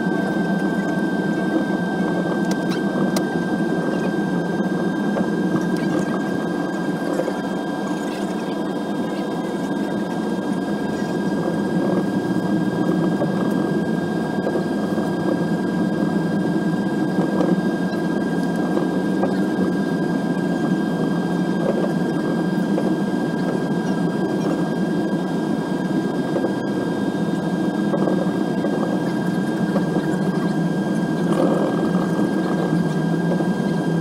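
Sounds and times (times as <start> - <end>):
faint whining tones: 0.0 - 34.0
jet engine rumble in cabin: 0.0 - 34.0.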